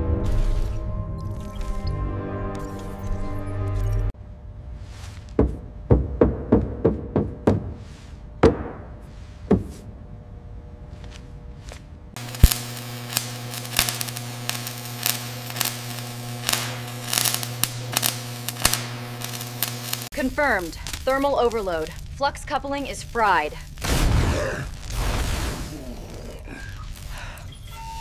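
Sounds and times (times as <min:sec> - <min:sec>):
welding arc buzzing and crackling: 0:11.0 - 0:28.0.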